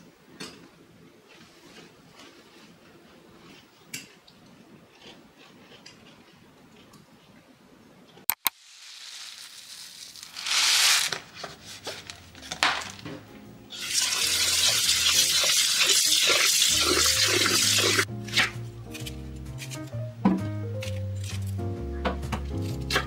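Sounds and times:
sharp clicks: 8.3 - 8.5
tap water running into pot: 13.8 - 18.1.

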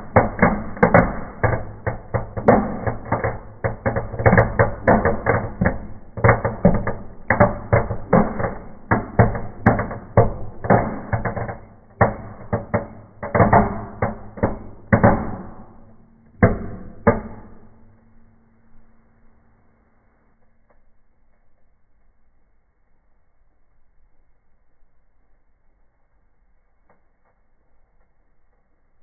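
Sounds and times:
firecrackers banging and crackling: 0.0 - 18.9.

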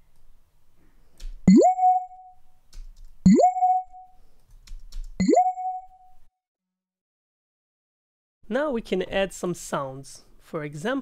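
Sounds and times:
synthesized bell-tone blip: 1.5 - 2.4, 3.3 - 4.1, 5.2 - 6.1.

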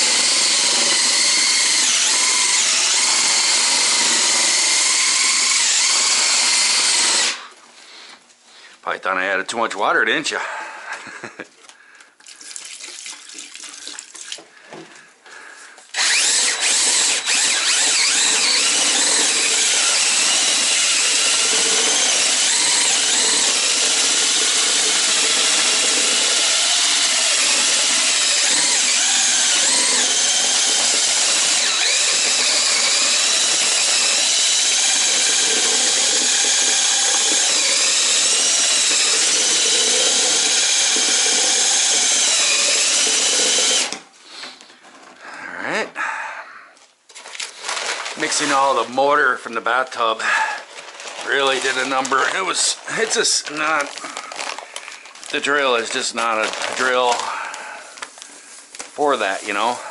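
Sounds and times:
drill motor whine: 0.0 - 7.4, 16.0 - 44.0.

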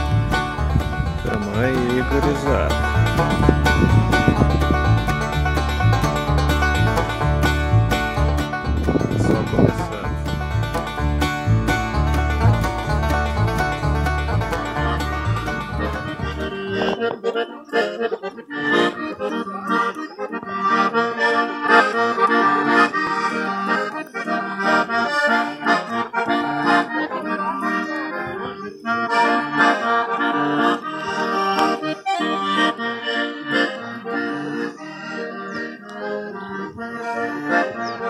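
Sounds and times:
accordion playing: 0.0 - 38.0.

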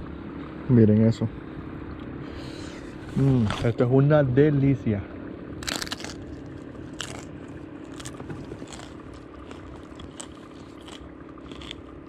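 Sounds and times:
steady low hum: 0.0 - 12.0
crunching bites of tostada: 3.2 - 3.8, 5.6 - 12.0.

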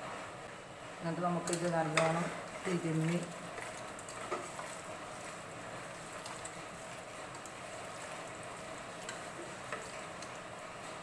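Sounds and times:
wet hand kneading meat: 3.0 - 10.4.

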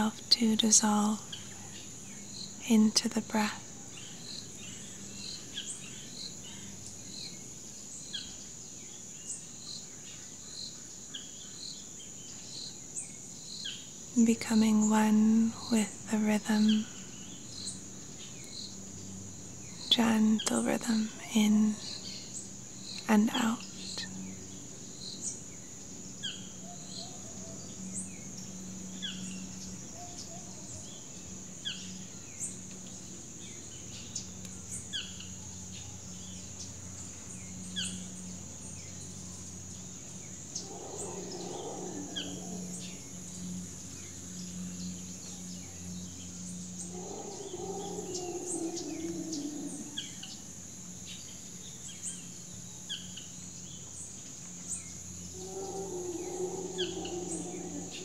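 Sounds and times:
high insect drone: 0.0 - 58.0
lower wavering animal call: 40.6 - 43.4, 46.8 - 50.5, 55.2 - 58.0.

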